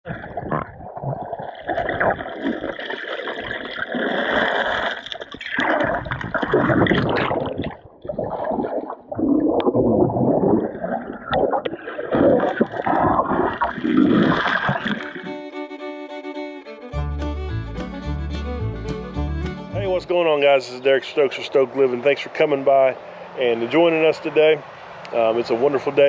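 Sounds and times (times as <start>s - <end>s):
underwater creek water gurgling: 0.0s - 15.5s, 19.9s - 26.0s
churning bubbles from wading: 0.1s - 15.3s.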